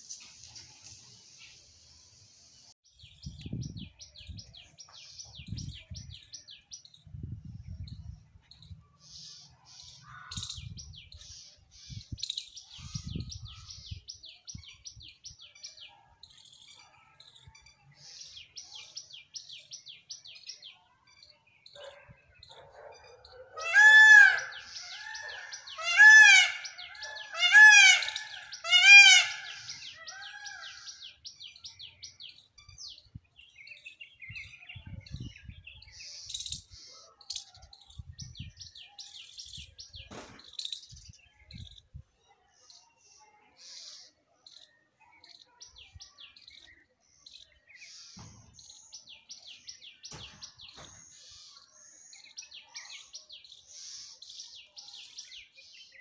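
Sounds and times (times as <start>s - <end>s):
small birds chirping: 0.0s - 23.6s, 24.4s - 56.0s
peacock calling: 23.4s - 31.2s.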